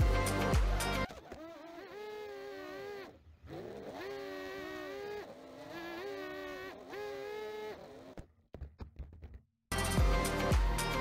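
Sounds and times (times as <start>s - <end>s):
drone motors whining: 0.0s - 8.2s.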